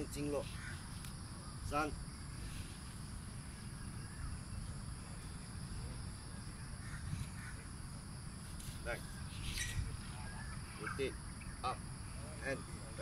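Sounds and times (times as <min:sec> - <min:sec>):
high insect drone: 0:00.0 - 0:13.0
low wind rumble: 0:00.0 - 0:13.0
faint short bird calls: 0:00.4 - 0:01.8, 0:06.7 - 0:07.7.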